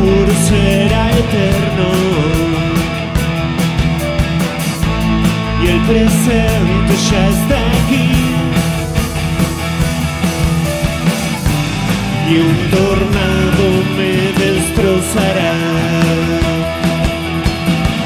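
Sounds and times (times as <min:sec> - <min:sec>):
man singing: 0:00.0 - 0:03.3, 0:05.4 - 0:08.9, 0:12.1 - 0:17.2
drums with cymbals: 0:00.0 - 0:18.0
electric guitar: 0:00.0 - 0:18.0.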